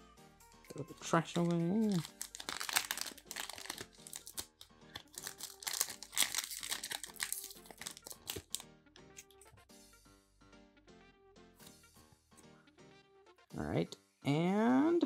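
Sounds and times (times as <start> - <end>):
light background music: 0.0 - 15.0
foil wrapper crinkling: 1.3 - 8.6.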